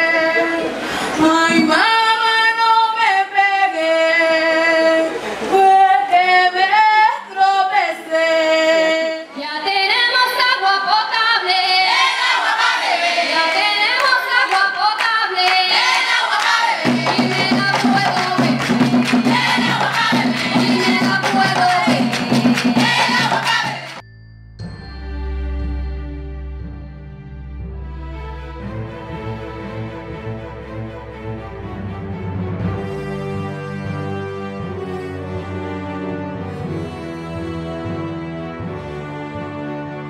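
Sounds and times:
women and girls singing: 0.0s - 24.0s
hand clapping: 14.0s - 24.0s.

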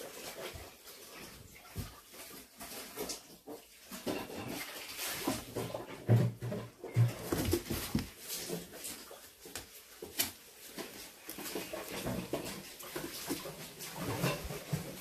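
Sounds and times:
kittens scuffling on cardboard: 3.9s - 15.0s
light thumps and taps: 5.6s - 8.2s.

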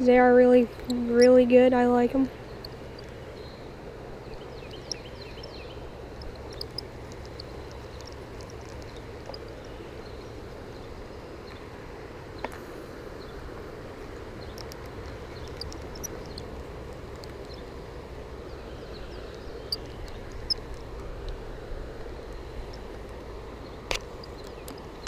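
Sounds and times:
low outdoor rumble: 0.0s - 25.0s
faint high chirps: 2.3s - 10.4s
sharp click: 23.9s - 24.9s.

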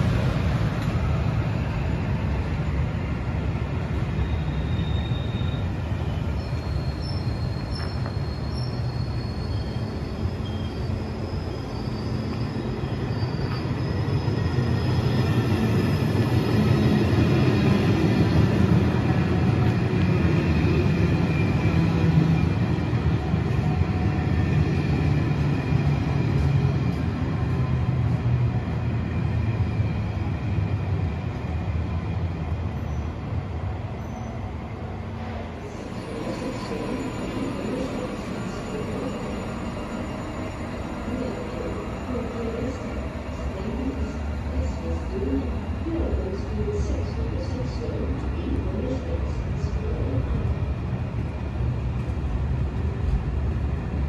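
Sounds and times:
train wheels rumbling on rails: 0.0s - 54.0s
faint high wheel squeals: 3.9s - 15.4s, 33.9s - 34.5s, 35.8s - 44.7s.

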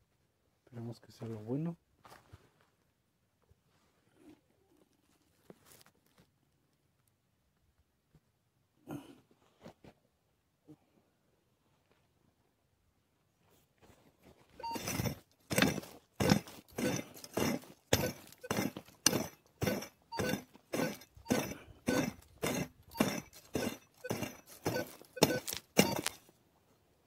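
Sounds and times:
metal tool striking stony ground: 14.6s - 26.3s.

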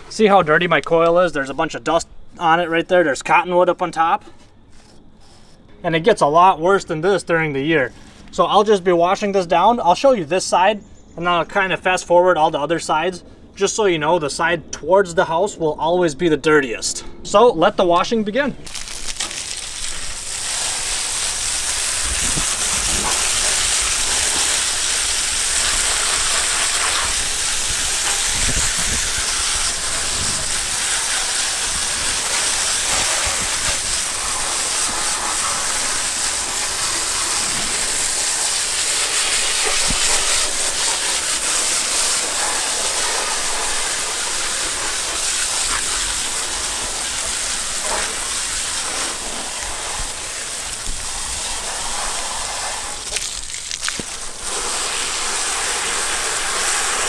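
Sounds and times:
hose spray hissing on coil: 18.7s - 57.0s.

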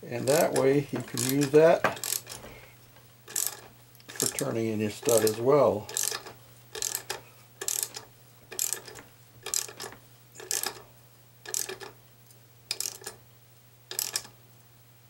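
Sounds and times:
socket ratchet clicking: 0.3s - 2.4s, 3.3s - 4.4s, 5.1s - 10.8s, 11.5s - 12.0s, 12.7s - 13.2s, 13.9s - 14.3s.

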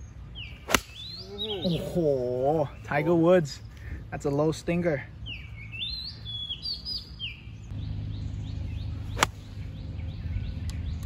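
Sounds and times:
birds whistling: 0.0s - 4.4s, 5.0s - 11.0s
golf club striking ball: 0.7s - 1.1s, 9.1s - 9.5s.

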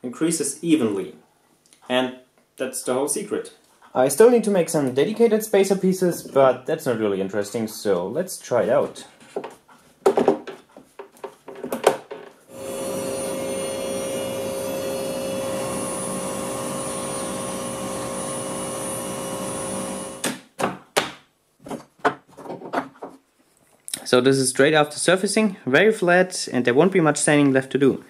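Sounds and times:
router spindle whining: 12.5s - 20.2s.

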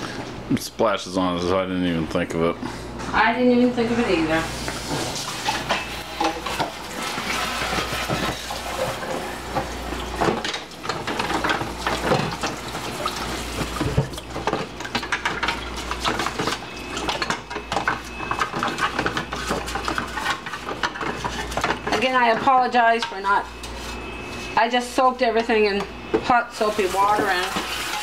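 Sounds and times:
dishes scrubbed with brush: 4.3s - 24.6s, 26.2s - 28.0s
utensils clinking on plastic bowl: 9.6s - 23.5s.

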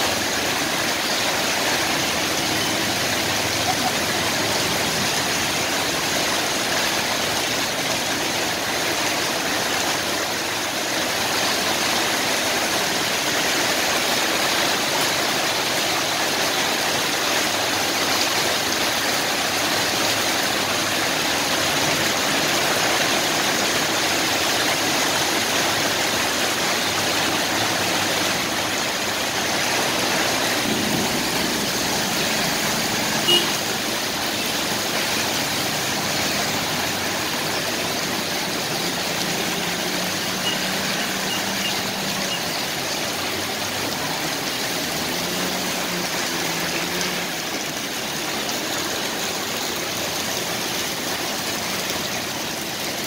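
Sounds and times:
heavy rain: 0.0s - 53.0s
tyres swishing through water: 0.0s - 53.0s
motorbikes passing: 0.1s - 7.6s, 19.8s - 49.3s
car passing: 27.6s - 47.4s.

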